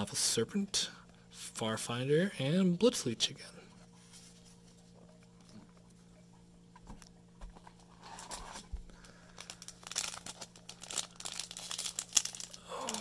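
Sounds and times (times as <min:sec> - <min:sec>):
foil wrapper crinkling: 0:07.9 - 0:13.0.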